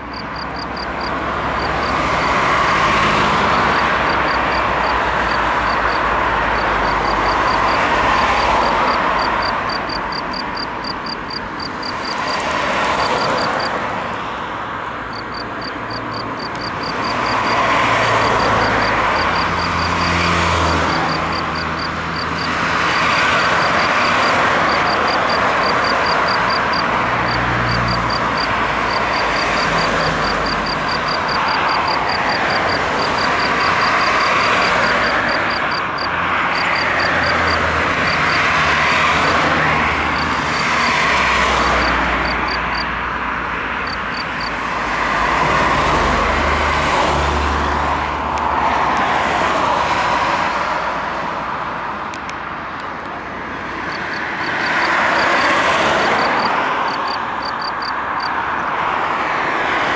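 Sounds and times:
cricket chirping: 0.0s - 13.7s, 15.1s - 39.4s, 40.0s - 42.9s, 43.8s - 44.6s, 53.9s - 58.4s.

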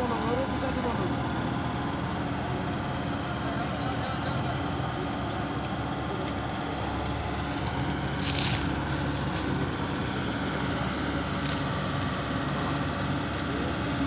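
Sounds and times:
excavator diesel engine running: 0.0s - 14.0s.

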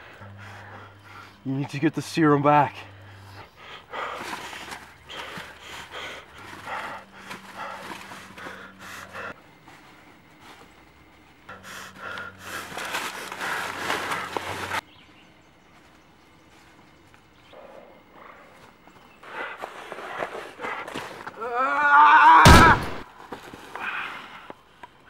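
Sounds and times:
footsteps crunching through dry leaves: 12.5s - 14.9s.

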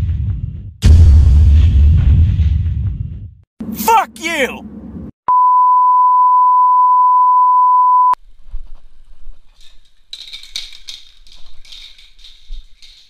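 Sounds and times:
steady test tone bleep: 5.3s - 8.2s
spray paint can hissing and rattling: 9.6s - 13.0s.

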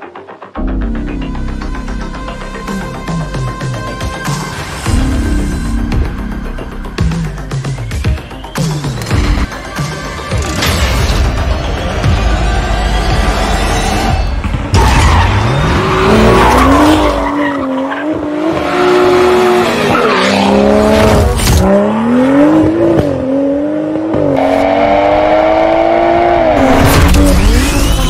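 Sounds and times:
car engine revving hard: 18.1s - 27.6s.

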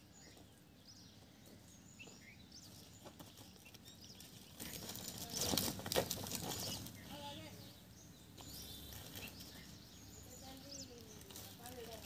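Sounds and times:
faint high bird chirps: 0.0s - 12.0s
plastic sack rustling: 4.4s - 7.0s, 10.4s - 12.0s.

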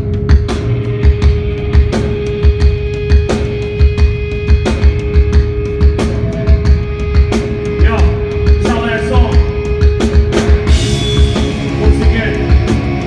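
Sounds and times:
distorted guitars and bass: 0.0s - 13.0s.

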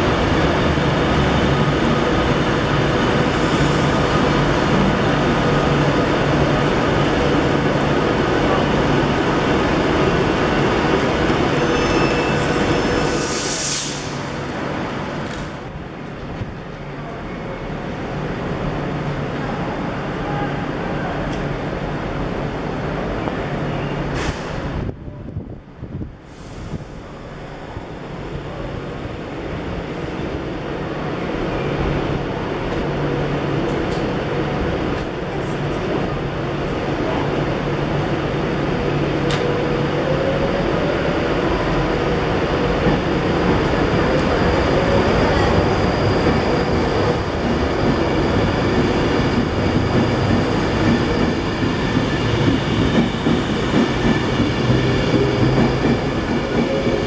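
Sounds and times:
train whine: 0.0s - 57.0s
electric train approaching: 26.1s - 57.0s.

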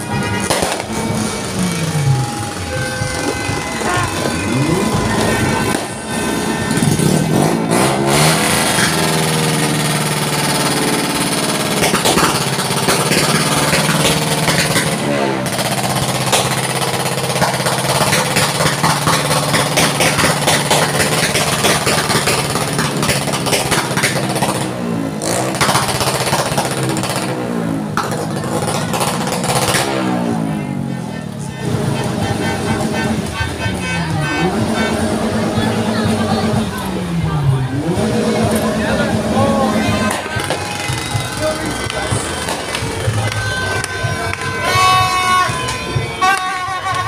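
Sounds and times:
firecrackers crackling: 0.0s - 30.1s, 39.8s - 47.0s
engine running: 0.0s - 47.0s.

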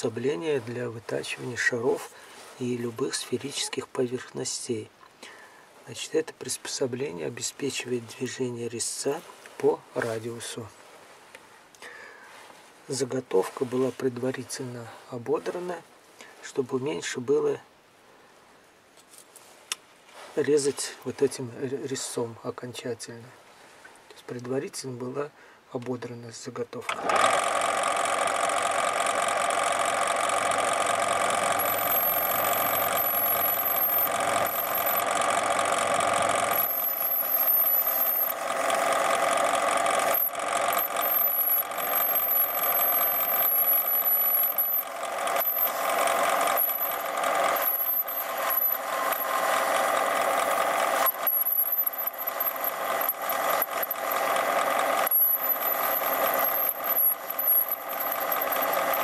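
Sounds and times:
lathe tool cutting metal: 27.0s - 59.0s
metal lathe whining: 27.0s - 59.0s.

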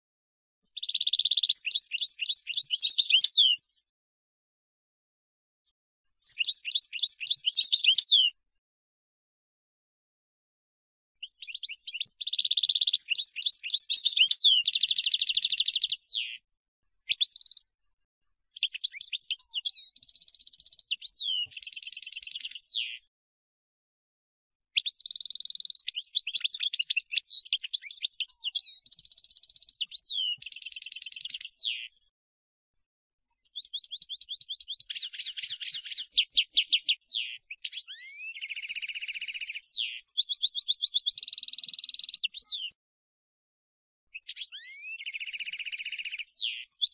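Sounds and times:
goldfinch singing: 0.7s - 3.6s, 6.3s - 8.4s, 11.2s - 16.3s, 17.1s - 17.6s, 18.6s - 23.0s, 24.8s - 31.8s, 33.3s - 42.8s, 44.2s - 46.9s.

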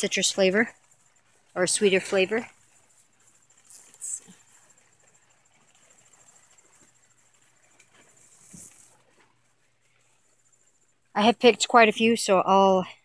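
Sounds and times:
cricket trilling: 0.0s - 11.7s
leaves brushing microphone: 0.0s - 12.1s.

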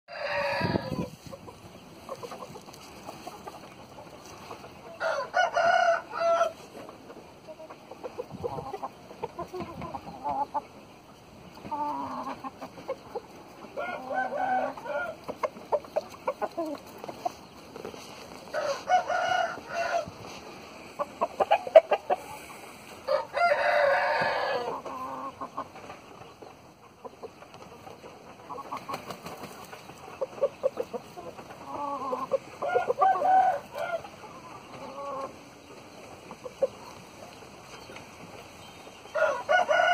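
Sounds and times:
roosters crowing: 0.1s - 1.4s, 4.9s - 6.8s, 13.7s - 15.4s, 18.3s - 25.4s, 31.6s - 35.4s, 39.0s - 39.9s
chickens clucking: 0.1s - 39.9s.

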